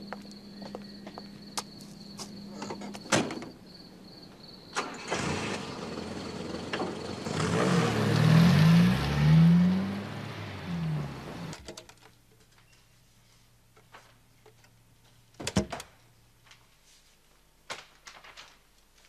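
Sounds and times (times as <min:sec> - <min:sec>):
crickets chirping: 0:00.0 - 0:11.6
car engine starting and revving: 0:04.8 - 0:11.6.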